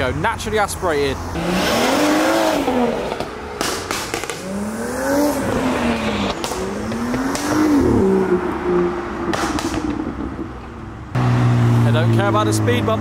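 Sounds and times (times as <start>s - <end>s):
car engine accelerating hard: 1.2s - 10.5s, 11.1s - 13.0s
short sharp cracks: 3.2s - 4.5s.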